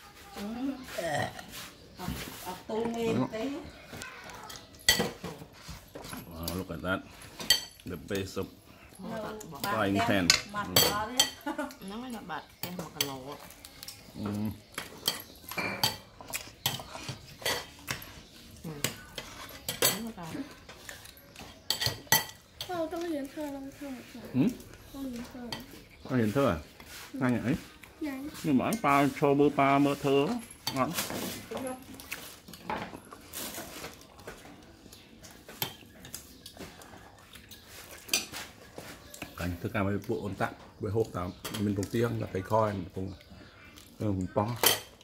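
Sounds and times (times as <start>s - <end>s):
bread rubbing around a wok: 0.0s - 2.8s, 26.1s - 30.3s.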